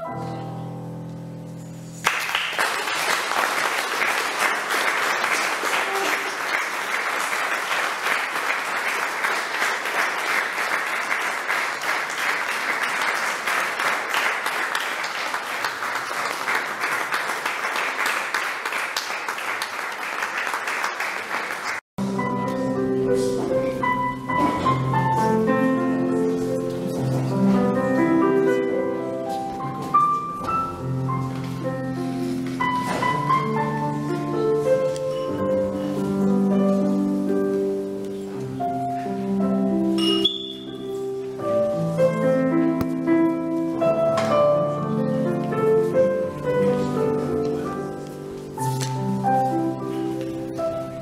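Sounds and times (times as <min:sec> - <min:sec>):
music with held notes: 0:00.0 - 0:02.0, 0:22.0 - 0:51.0
crowd applauding: 0:02.0 - 0:21.8.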